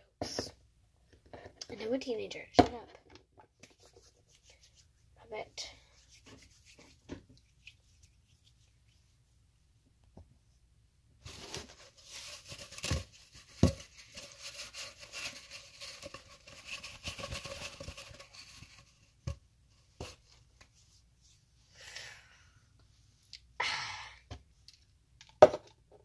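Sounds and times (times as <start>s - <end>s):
fingers rubbing on phone microphone: 5.9s - 9.1s.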